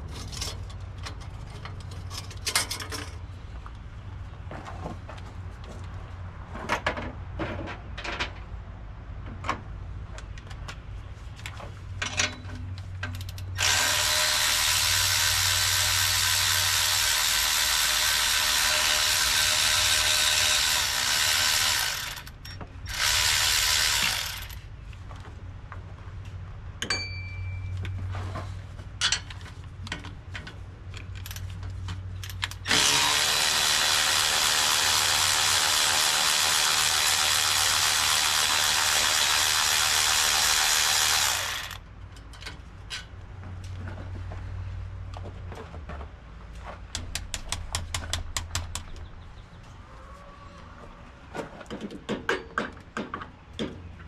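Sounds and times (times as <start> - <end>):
clinks of tools and metal parts: 0.0 - 3.2, 12.0 - 13.6, 22.2 - 22.7, 26.8 - 32.7, 42.0 - 43.2
cordless power tool running: 13.6 - 22.3, 32.7 - 41.8.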